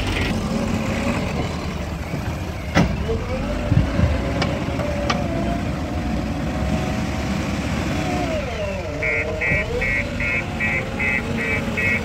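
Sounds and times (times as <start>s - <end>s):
backhoe diesel engine running: 0.0s - 12.0s
reversing alarm beeping: 9.0s - 12.0s.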